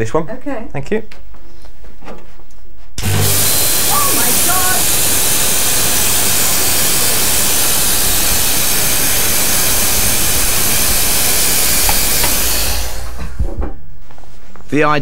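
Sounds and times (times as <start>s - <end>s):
fog generator hissing: 3.0s - 13.5s.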